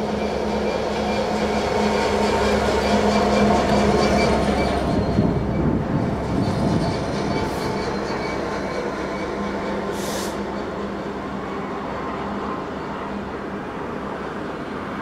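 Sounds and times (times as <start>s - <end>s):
diesel locomotive engine humming: 0.0s - 15.0s
brief hiss: 10.0s - 10.4s.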